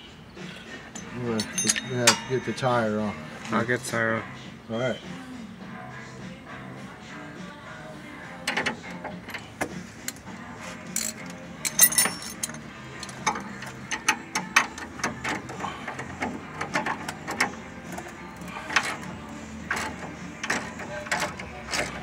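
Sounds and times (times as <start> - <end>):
wrenches clinking against bolts: 0.9 - 3.3, 8.4 - 10.2, 10.8 - 22.0.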